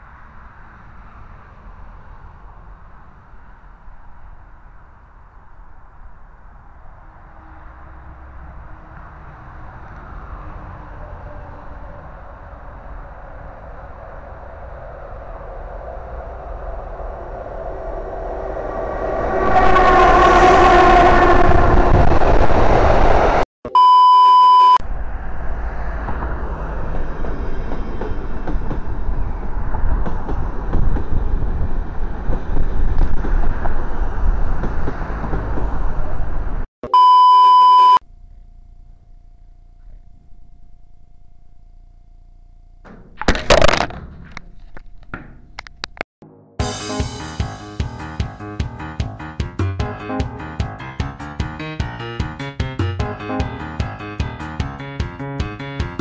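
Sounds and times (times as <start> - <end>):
train running noise: 6.9 - 23.4, 25.9 - 36.6
train horn: 18.7 - 22.2
high bleep tone: 23.7 - 24.8, 36.8 - 38.0.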